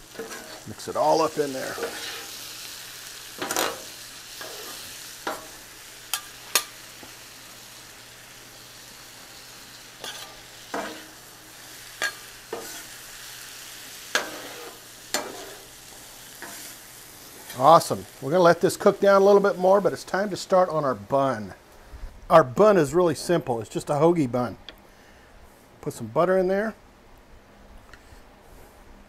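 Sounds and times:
food sizzling on griddle: 0:00.0 - 0:20.6
metal spatulas scraping griddle: 0:00.1 - 0:02.4, 0:03.4 - 0:05.5, 0:10.0 - 0:11.2, 0:12.0 - 0:13.0, 0:14.1 - 0:15.7, 0:16.4 - 0:16.8.

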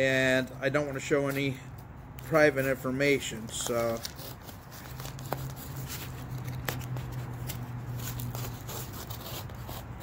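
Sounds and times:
blade cutting open a package: 0:03.5 - 0:10.0.

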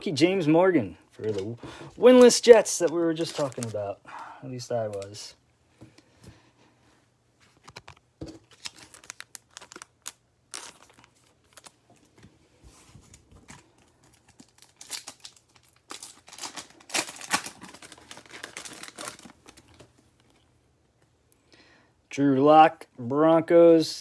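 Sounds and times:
plastic wrapper crinkling and tearing: 0:01.2 - 0:03.8, 0:07.5 - 0:12.1, 0:13.4 - 0:20.5.

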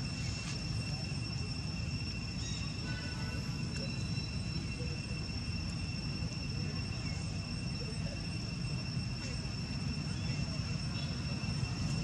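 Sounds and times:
high-pitched insect drone: 0:00.0 - 0:12.0.

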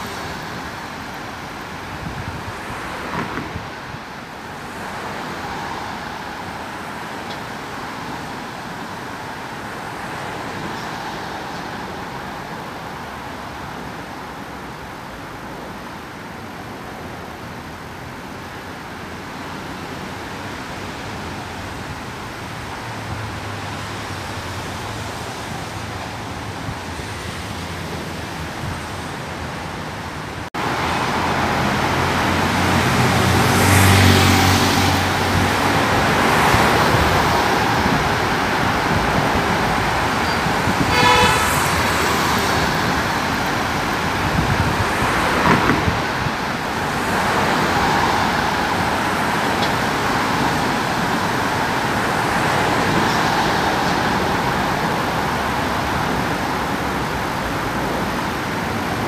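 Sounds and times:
cars driving past: 0:00.0 - 0:16.0, 0:18.3 - 0:59.0
short car horn toot: 0:40.8 - 0:42.2.

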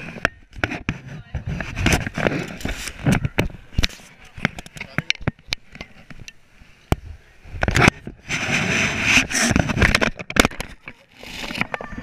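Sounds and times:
fabric brushing over microphone: 0:08.1 - 0:10.0.

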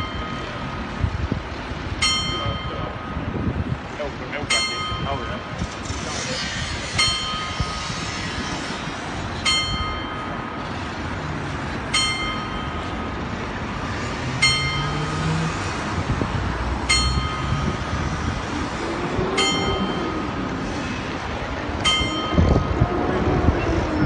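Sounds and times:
clock tower bell striking: 0:00.0 - 0:00.8, 0:02.0 - 0:03.2, 0:04.4 - 0:05.5, 0:07.0 - 0:07.6, 0:09.4 - 0:10.4, 0:11.9 - 0:13.1, 0:14.4 - 0:15.1, 0:16.9 - 0:17.9, 0:19.4 - 0:20.4, 0:21.8 - 0:22.8
street noise: 0:00.0 - 0:24.0.

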